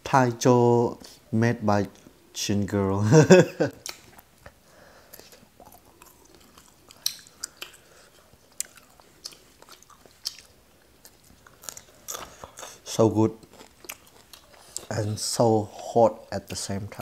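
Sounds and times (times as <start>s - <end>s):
people chewing and biting meat: 3.8s - 12.8s, 13.4s - 15.0s.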